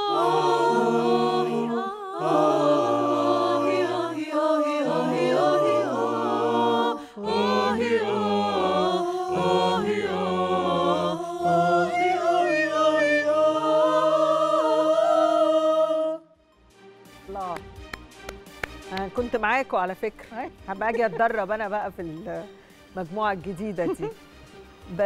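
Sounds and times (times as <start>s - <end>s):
men singing bass line: 0.0s - 16.2s
mixed choir singing wordless harmonies: 0.0s - 16.4s.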